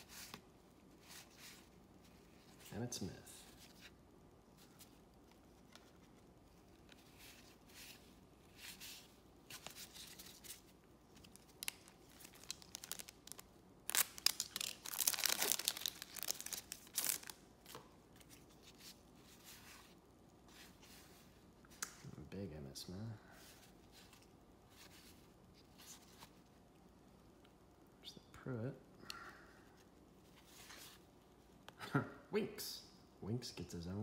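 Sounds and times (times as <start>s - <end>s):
cards being shuffled: 4.6s - 22.0s
plastic wrapper crinkling and tearing: 11.2s - 17.4s.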